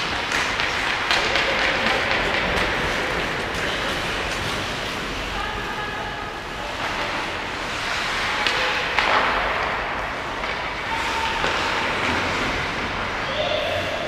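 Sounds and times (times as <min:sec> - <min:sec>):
sharp hockey stick clacks: 0:00.0 - 0:04.7, 0:08.1 - 0:12.4
skate blades scraping ice: 0:00.0 - 0:05.4, 0:06.7 - 0:13.2.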